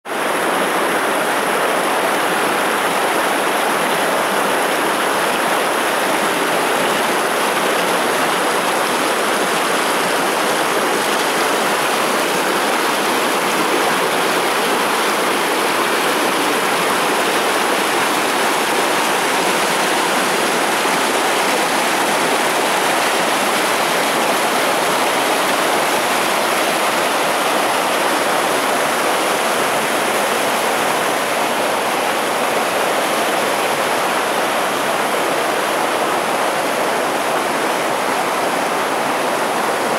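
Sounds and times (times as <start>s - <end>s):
stream rushing over boulders: 0.1s - 39.9s.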